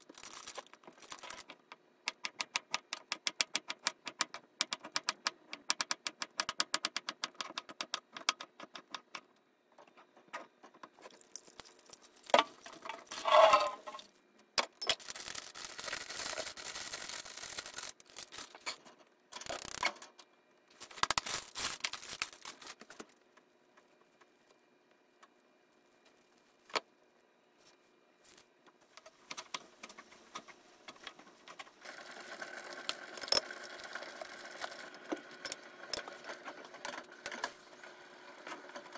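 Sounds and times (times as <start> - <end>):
water pouring: 11.0 - 14.0, 31.8 - 35.0.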